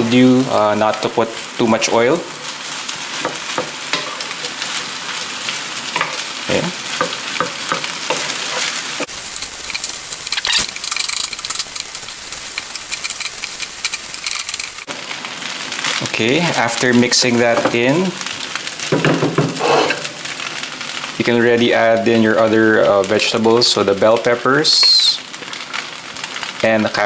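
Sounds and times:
rice sizzling in a frying pan: 0.0 - 27.0
wooden spatula scraping a pan: 7.0 - 11.9, 19.4 - 20.2.

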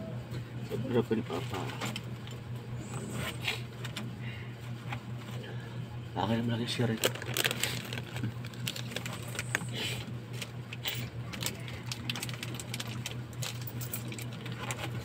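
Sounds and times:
steady low hum: 0.0 - 15.0
plastic wrapper crinkling: 6.8 - 9.7, 11.3 - 14.7.

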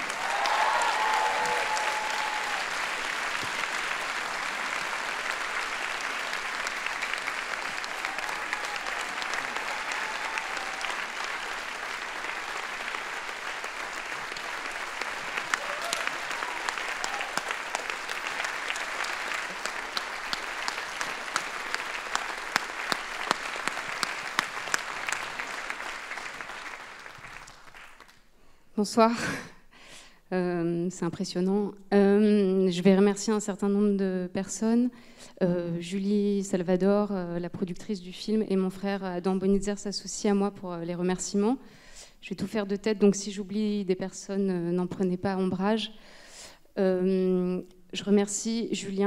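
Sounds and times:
audience applauding: 0.0 - 28.3.

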